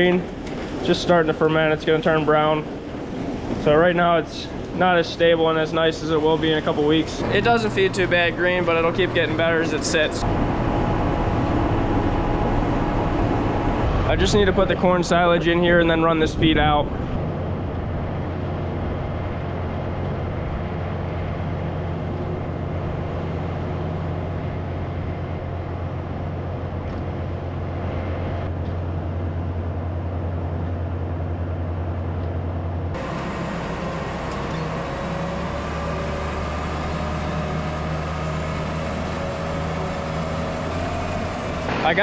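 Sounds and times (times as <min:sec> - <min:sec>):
diesel engines running: 0:00.0 - 0:42.0
tractor pulling mixer wagon: 0:32.9 - 0:42.0.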